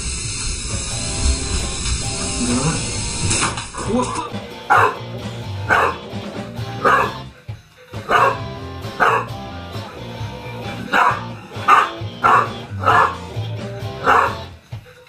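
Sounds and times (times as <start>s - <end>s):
background music: 0.8s - 15.0s
small dog barking: 4.7s - 5.0s, 5.7s - 6.0s, 6.8s - 7.2s, 8.1s - 9.4s, 10.8s - 13.3s, 14.0s - 14.5s.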